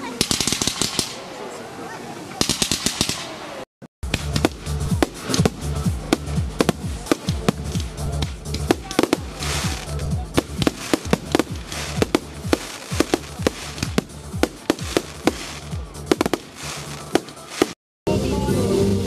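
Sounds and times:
fireworks bangs: 0.0 - 1.3, 2.4 - 17.8
music playing: 4.0 - 19.0.

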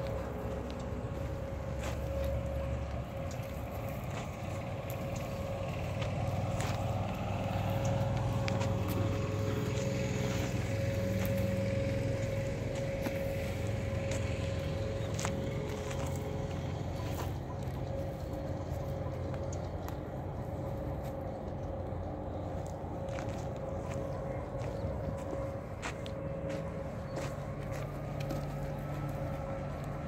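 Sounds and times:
motor humming and whining: 0.0 - 30.0.

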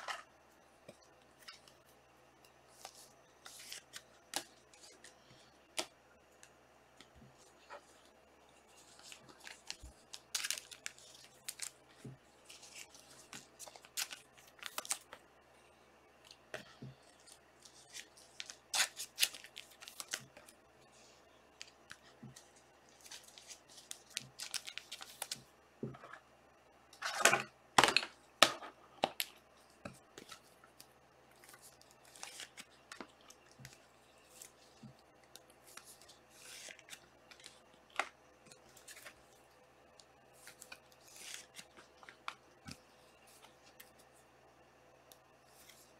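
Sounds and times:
card pack wrappers tearing: 9.4 - 11.8, 17.8 - 20.3.

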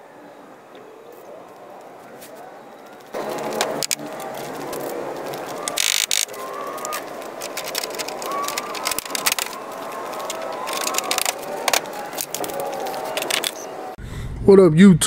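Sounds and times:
rapid clicks and rattles: 2.9 - 13.7.

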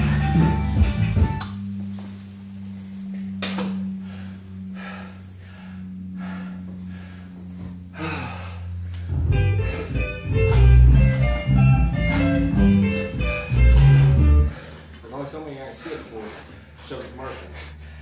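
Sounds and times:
man breathing hard: 0.0 - 9.5, 13.8 - 18.0
low steady hum: 0.0 - 18.0.

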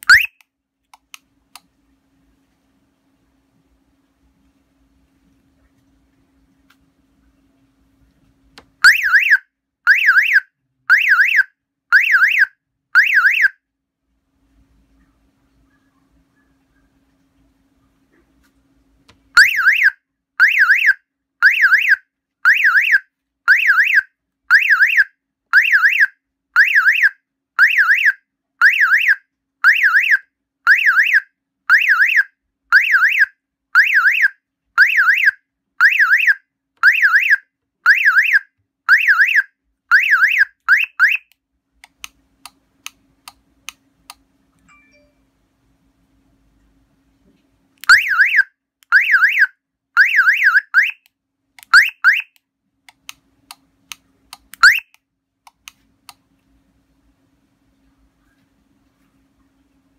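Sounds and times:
car alarm siren pulsing: 8.8 - 13.6, 19.4 - 41.3, 47.8 - 51.0, 51.7 - 52.4, 54.6 - 55.0.

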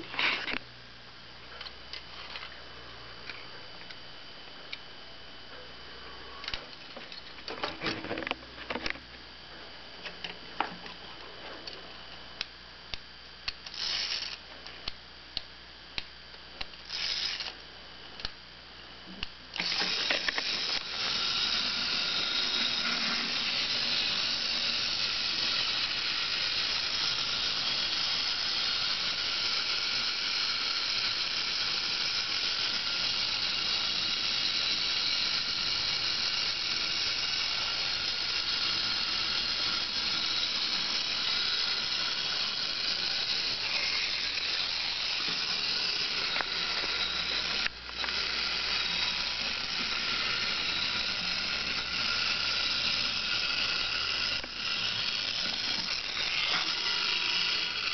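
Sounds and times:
clockwork toy whirring: 13.6 - 14.4, 16.8 - 17.6, 19.6 - 57.9.

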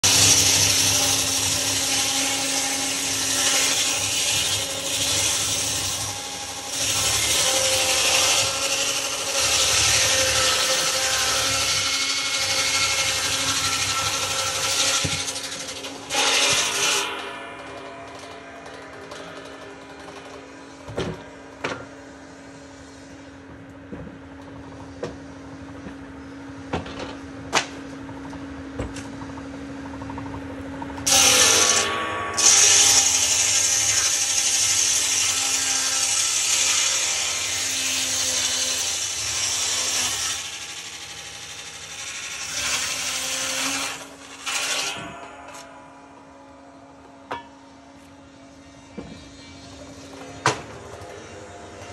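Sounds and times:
saw blade cutting wood: 0.0 - 20.8, 31.0 - 46.0.

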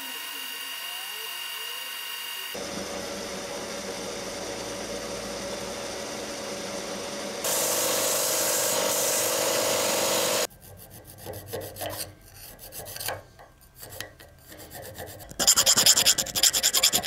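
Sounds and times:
hissing belt sander: 0.0 - 10.5
milling machine cutting metal: 0.0 - 10.5.

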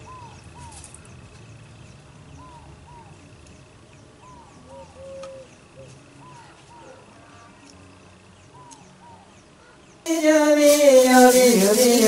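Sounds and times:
faint high tone: 10.1 - 12.0.

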